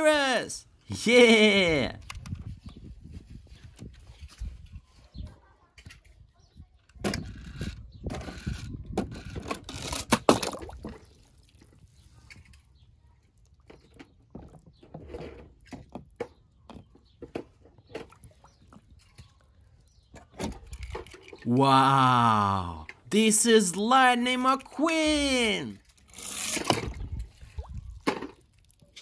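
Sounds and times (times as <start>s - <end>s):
water splashing in plastic tub: 10.2s - 11.9s.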